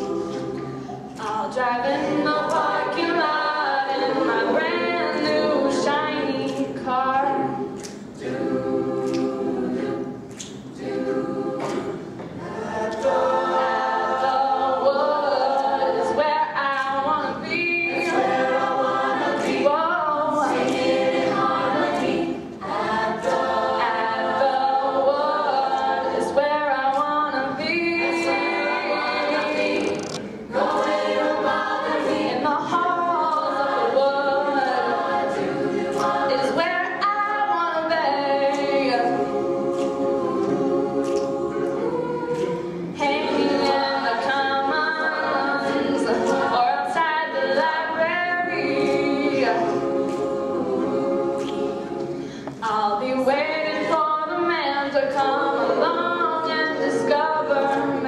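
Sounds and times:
choir singing in harmony: 0.0s - 58.0s.

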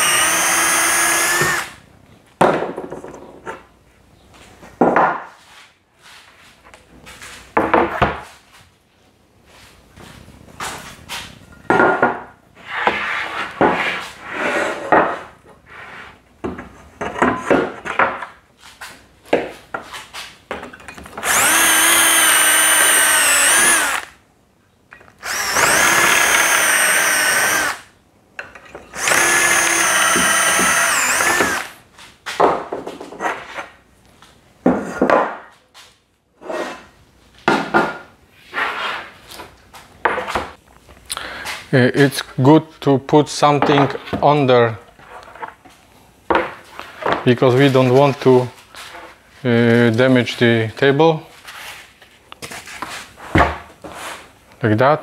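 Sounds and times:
cordless drill whining: 0.0s - 1.8s, 21.2s - 24.2s, 25.2s - 27.9s, 29.0s - 31.8s.

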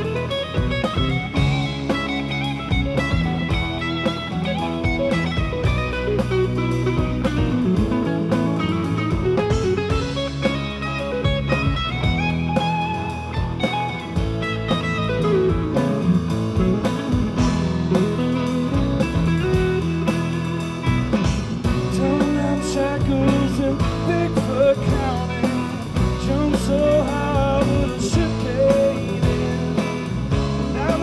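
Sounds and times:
drum kit: 0.0s - 31.0s
electric bass: 0.0s - 31.0s
electric guitars: 0.0s - 31.0s
person singing: 21.8s - 31.0s.

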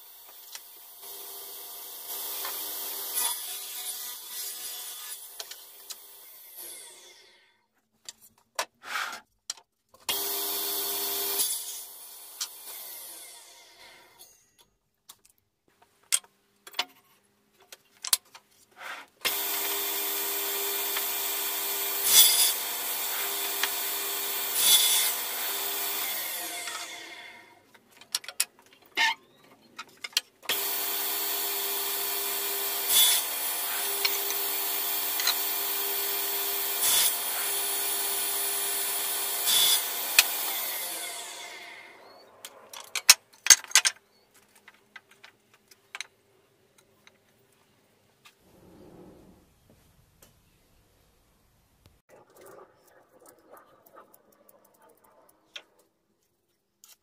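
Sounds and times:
saw blade cutting wood: 2.1s - 7.4s, 18.7s - 27.6s, 30.5s - 43.2s
circular saw running: 19.3s - 27.5s, 30.5s - 42.2s.

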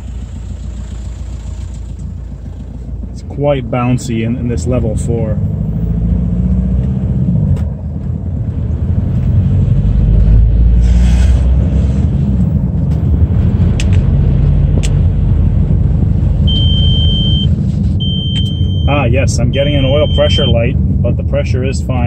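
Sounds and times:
car engine and road rumble: 0.0s - 22.0s
high warning beep: 16.5s - 20.7s.

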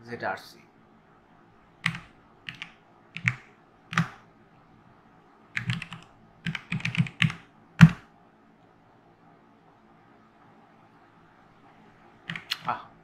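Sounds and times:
keyboard typing: 1.8s - 4.2s, 5.6s - 8.0s, 12.3s - 12.8s.

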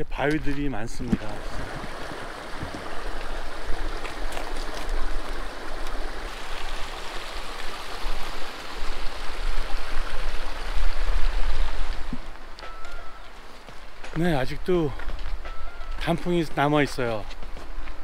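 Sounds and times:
creek water rushing: 1.2s - 15.0s.

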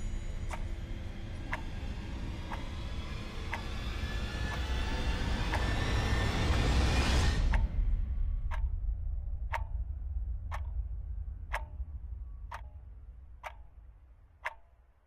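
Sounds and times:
low drone: 0.0s - 14.4s
clock ticking: 3.5s - 3.7s, 7.5s - 7.7s, 8.4s - 8.8s, 9.5s - 14.8s.

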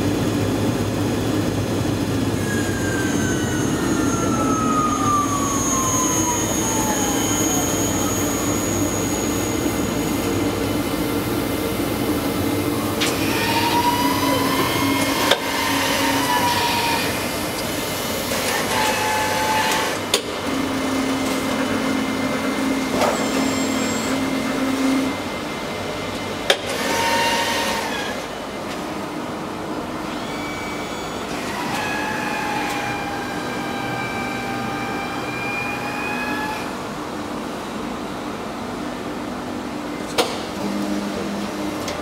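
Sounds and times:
machine mechanical hum: 0.0s - 42.0s
motor whine: 1.9s - 19.9s.

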